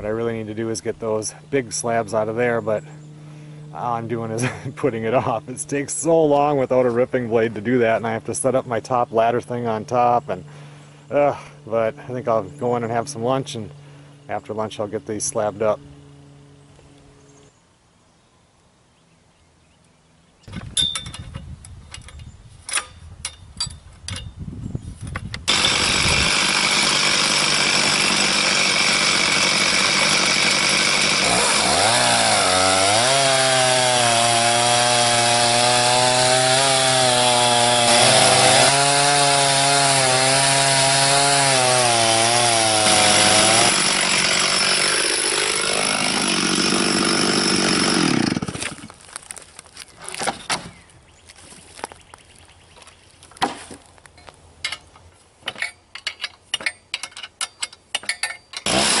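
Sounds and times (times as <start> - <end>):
chainsaw cutting log: 25.3 - 50.8, 58.6 - 59.0.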